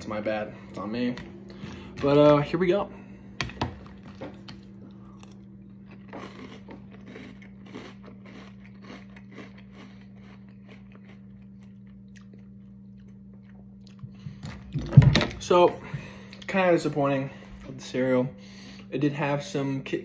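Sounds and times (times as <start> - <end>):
low hum: 0.0 - 20.0
cereal crunching while chewed: 3.8 - 14.3.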